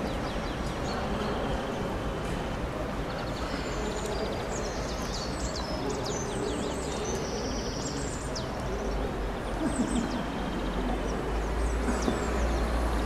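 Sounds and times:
songbirds chirping and trilling: 0.0s - 13.0s
steady background noise: 0.0s - 13.0s.

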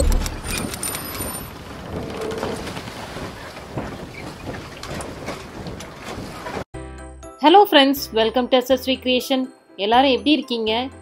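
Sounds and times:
deep boom hit: 0.0s - 0.6s.

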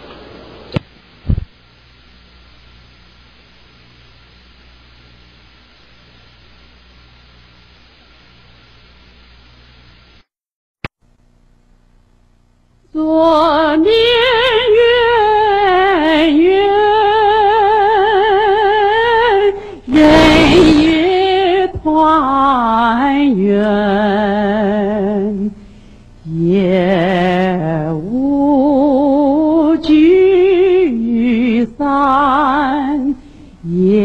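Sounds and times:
woman singing with vibrato: 12.9s - 25.6s, 26.2s - 34.0s
noisy swish: 19.9s - 21.3s.

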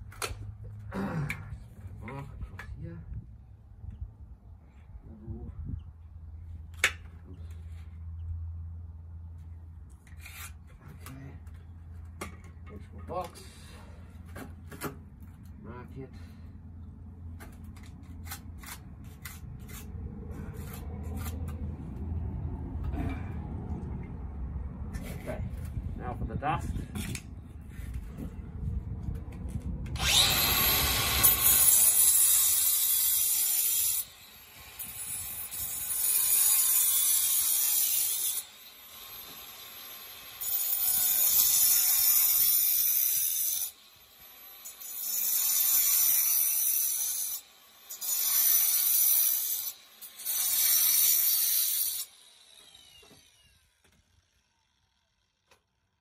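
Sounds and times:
angle grinder cutting concrete: 30.0s - 55.3s.

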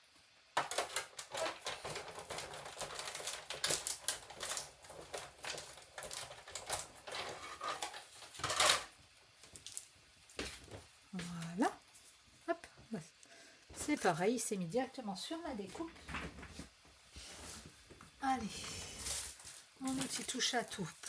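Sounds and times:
die-cutting machine clicking and clattering: 0.6s - 8.8s.

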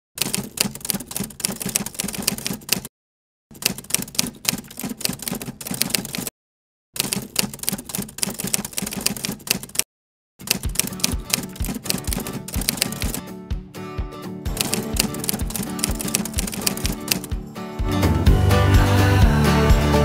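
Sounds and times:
typewriter key clatter: 0.2s - 2.9s, 3.6s - 6.3s, 7.0s - 9.8s, 10.4s - 13.2s, 14.6s - 17.3s.

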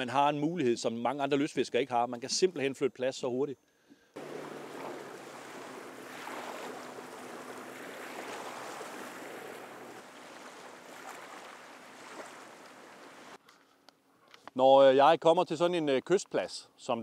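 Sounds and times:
outboard motor hum: 4.2s - 13.4s
rushing water and waves: 4.2s - 13.4s.

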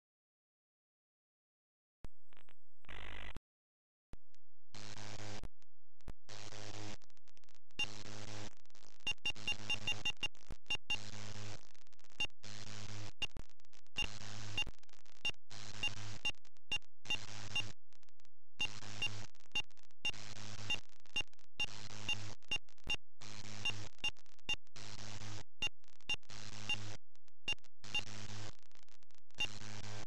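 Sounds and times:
small regular ticks: 6.8s - 17.7s.

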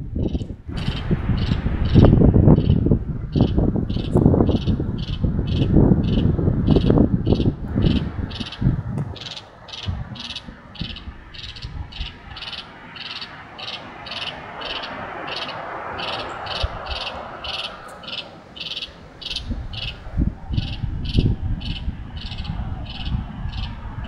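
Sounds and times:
small animal chirping: 3.4s - 23.8s
low thumps: 6.6s - 12.0s.

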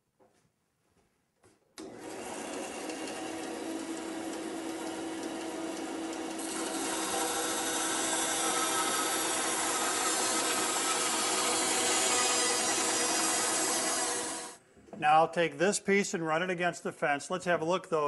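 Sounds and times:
bandsaw motor hum: 1.8s - 14.6s
saw blade rasping through wood: 1.9s - 14.6s.

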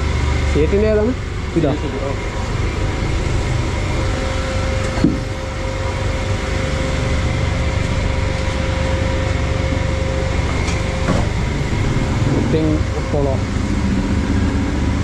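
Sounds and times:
low rumble: 0.0s - 15.0s
mechanical hum: 0.0s - 15.0s.

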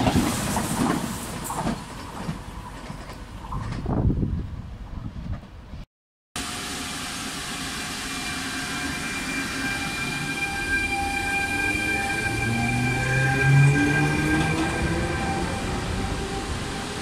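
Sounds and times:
electric locomotive whine: 6.4s - 17.0s.

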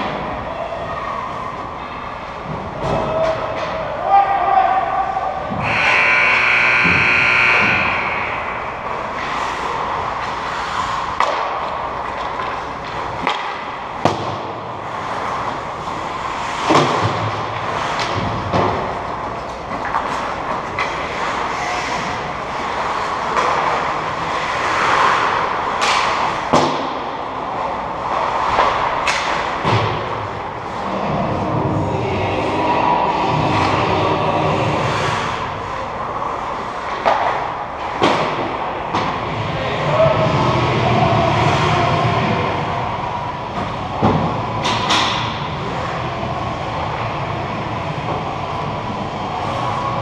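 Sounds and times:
hockey sticks and puck clacking: 5.4s - 31.1s, 33.3s - 42.7s, 43.5s - 46.1s
high steady tone: 5.6s - 8.9s
skates scraping ice: 5.6s - 31.7s, 32.3s - 50.0s.

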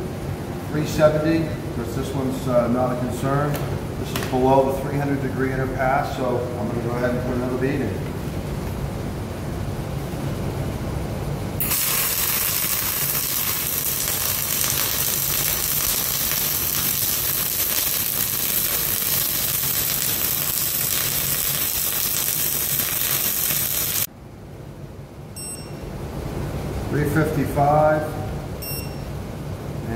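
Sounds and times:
welding arc hissing: 11.6s - 24.1s.

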